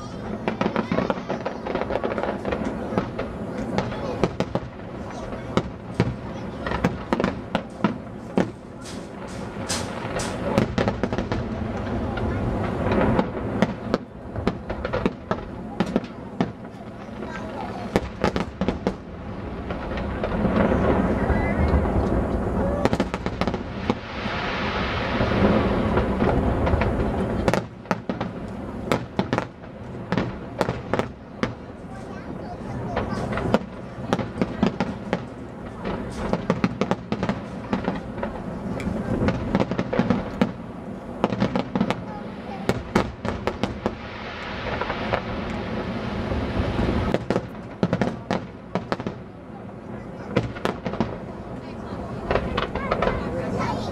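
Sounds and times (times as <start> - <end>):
fireworks bursting: 0.0 - 53.9
firework shells bursting: 0.2 - 16.8.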